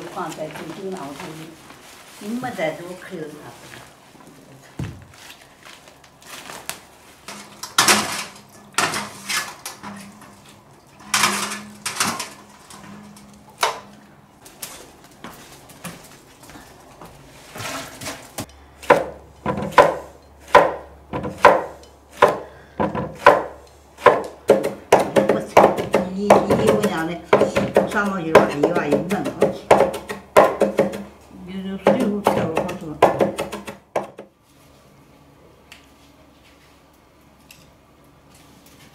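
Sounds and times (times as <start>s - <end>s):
cleaver chopping on wooden board: 18.8s - 31.1s.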